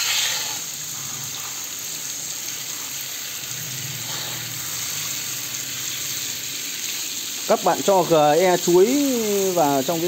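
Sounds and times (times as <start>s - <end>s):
hose nozzle spraying water: 0.0s - 2.0s.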